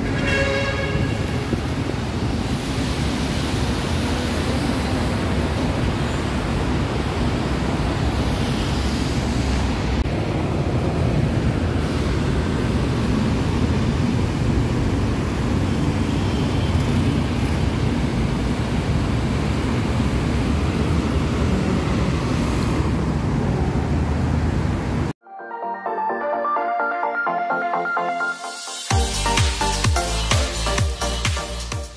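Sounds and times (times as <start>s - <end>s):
street traffic rushing: 0.0s - 25.2s.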